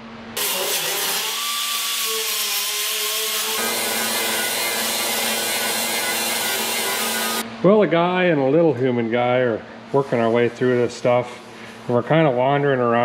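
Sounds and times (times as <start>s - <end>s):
angle grinders grinding metal: 0.4s - 7.4s.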